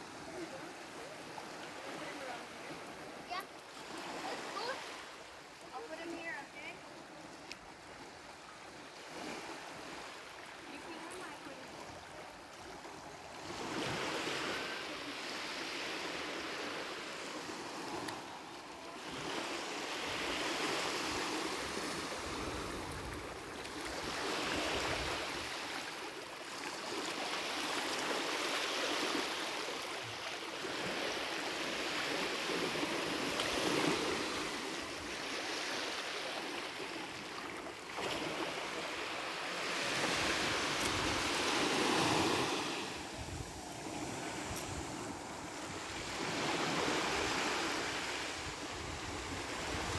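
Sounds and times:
small waves lapping on sand: 0:00.0 - 0:49.9
wind rumble on microphone: 0:43.0 - 0:46.2, 0:48.3 - 0:49.9.

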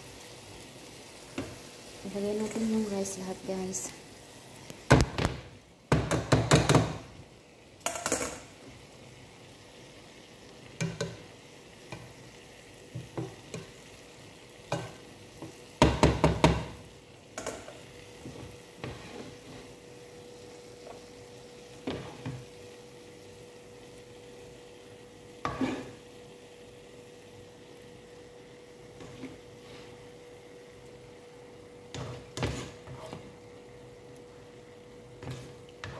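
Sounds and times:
spoon clattering and scraping pan: 0:07.8 - 0:08.5, 0:10.8 - 0:11.3, 0:14.7 - 0:16.6, 0:17.4 - 0:19.8, 0:25.4 - 0:26.0, 0:31.9 - 0:33.3
faint steady hum: 0:16.7 - 0:35.9.

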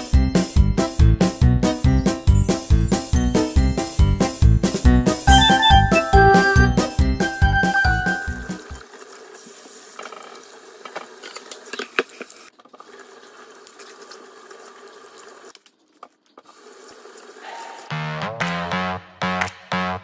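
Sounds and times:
music with a beat: 0:00.0 - 0:08.8, 0:18.0 - 0:20.0.

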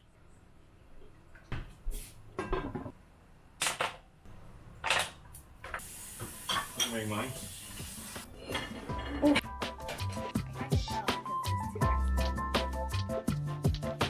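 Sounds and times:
pans and utensils clinking: 0:05.7 - 0:07.3, 0:08.4 - 0:10.4.

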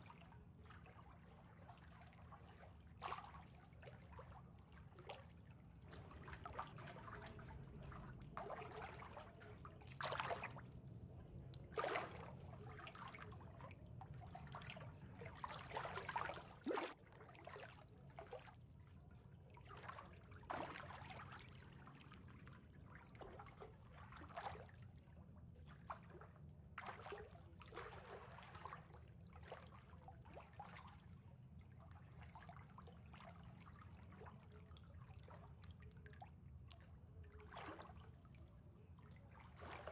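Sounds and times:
water lapping and trickling: 0:00.0 - 0:39.9.

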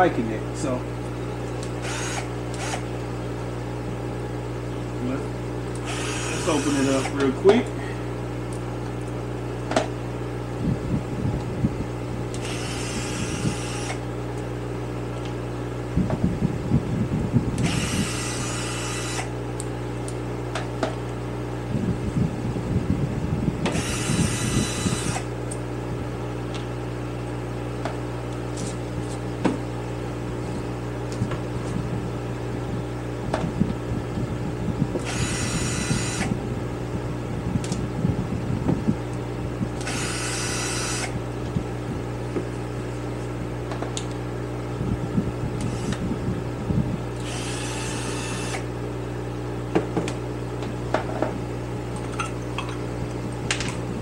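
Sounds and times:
steady hum: 0:00.0 - 0:54.0
cordless drill running: 0:01.8 - 0:02.9, 0:05.7 - 0:07.2, 0:12.3 - 0:14.0, 0:17.6 - 0:19.3, 0:23.7 - 0:25.3, 0:35.0 - 0:36.4, 0:39.8 - 0:41.2, 0:45.6 - 0:46.0, 0:47.2 - 0:48.7.

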